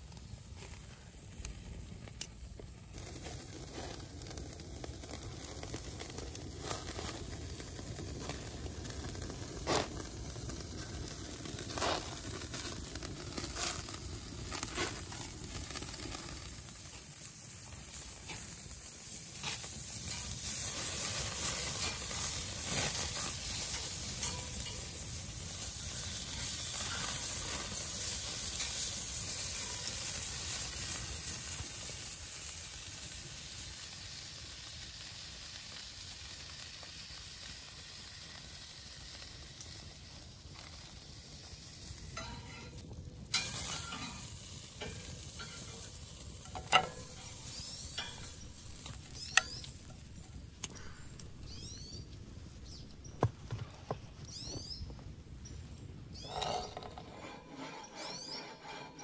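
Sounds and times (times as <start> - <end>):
patties sizzling on a grill: 0.0 - 53.1
metal tongs clicking on grate: 23.5 - 25.0, 43.4 - 49.7.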